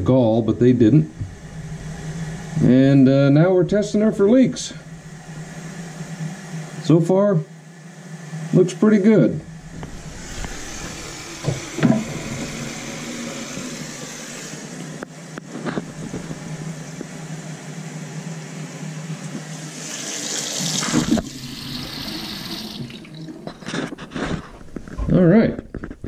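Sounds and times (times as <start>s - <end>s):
faucet water running into drain: 9.5s - 14.9s, 19.1s - 23.5s.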